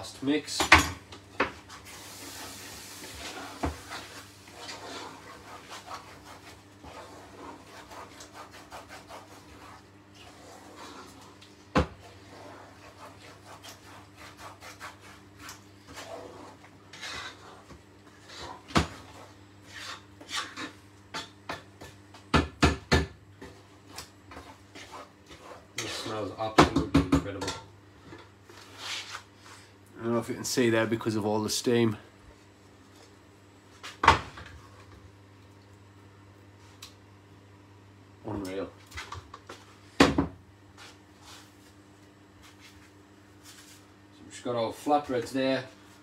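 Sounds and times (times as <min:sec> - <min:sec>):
wooden spoon scraping a pot: 0:01.6 - 0:21.3, 0:24.3 - 0:26.4.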